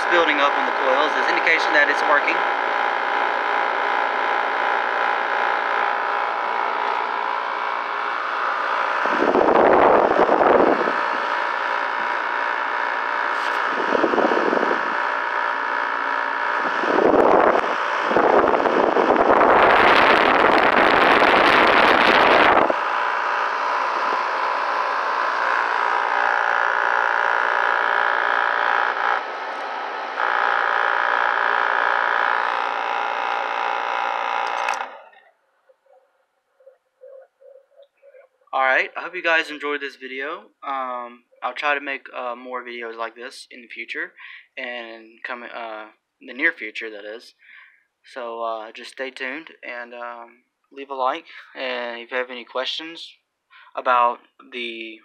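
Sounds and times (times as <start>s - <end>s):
air conditioner humming: 0.0s - 26.8s.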